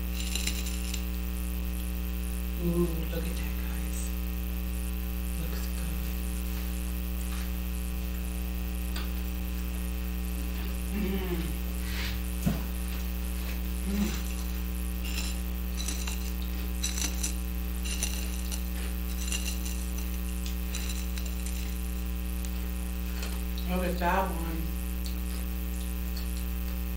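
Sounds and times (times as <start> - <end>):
crackly rustling of crushed snacks: 0.0 - 1.2, 13.9 - 22.6
short hummed vocal sounds: 0.0 - 6.9, 10.2 - 26.9
electrical mains hum: 0.0 - 26.9.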